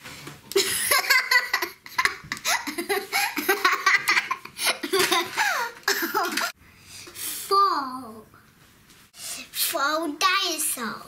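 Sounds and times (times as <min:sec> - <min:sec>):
young child laughing: 0:00.5 - 0:06.6.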